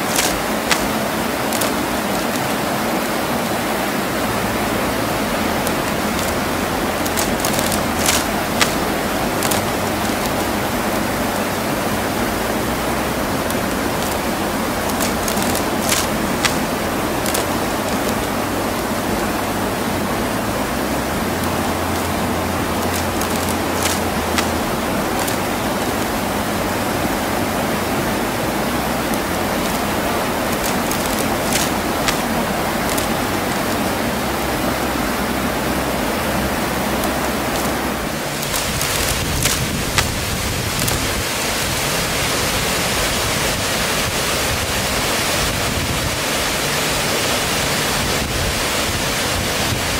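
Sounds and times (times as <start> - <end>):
sharp clicks: 0.0 - 2.6, 5.6 - 10.6, 13.5 - 18.8, 21.4 - 26.2, 29.0 - 33.8, 38.4 - 41.2
stream rushing over rocks: 0.0 - 49.9.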